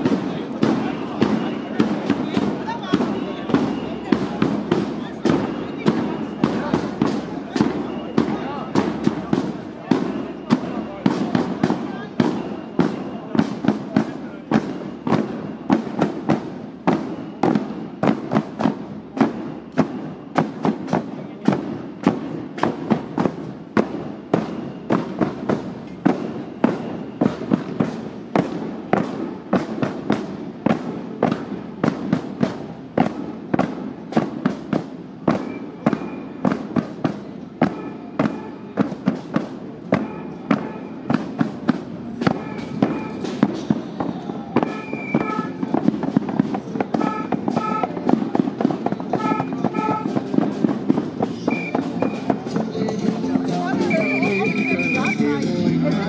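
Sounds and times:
loud percussive hits: 0.0 - 54.0.

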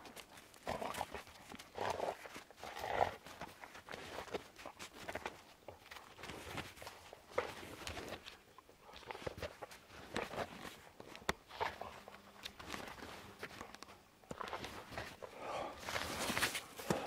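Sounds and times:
footsteps in snow: 15.8 - 17.0.

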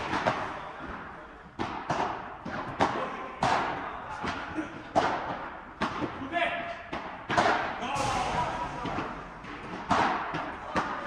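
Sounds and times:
ball bouncing off court and walls: 1.6 - 6.2, 6.8 - 11.0
ball struck by rackets: 6.9 - 11.0.

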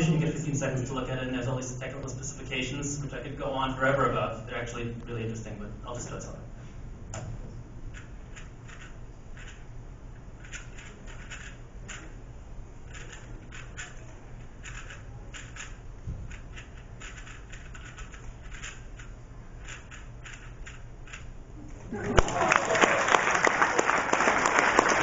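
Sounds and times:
puzzle cube plastic clicks: 10.4 - 12.1, 12.9 - 21.3.

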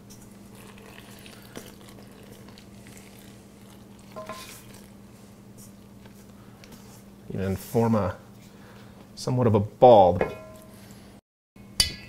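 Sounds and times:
water pouring: 0.4 - 5.0
wooden spoon scraping bowl: 4.0 - 4.9.

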